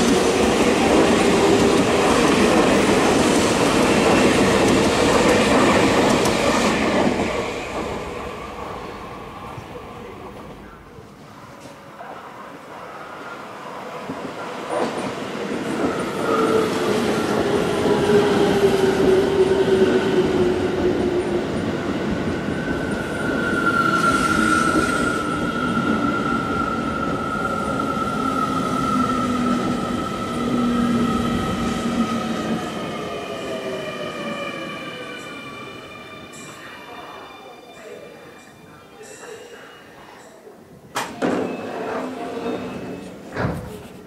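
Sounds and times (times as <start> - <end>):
electric train braking to a stop: 41.0 - 43.3.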